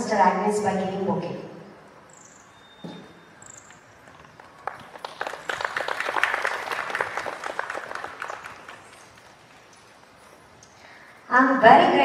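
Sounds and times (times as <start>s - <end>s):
audience applause: 4.1s - 9.7s.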